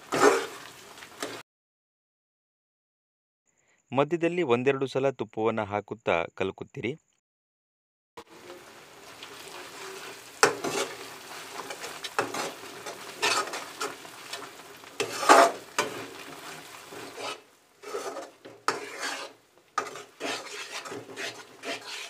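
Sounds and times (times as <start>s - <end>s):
light sizzle: 0.0s - 1.4s, 8.2s - 22.0s
spatula scraping metal pan: 0.0s - 1.4s, 8.2s - 22.0s.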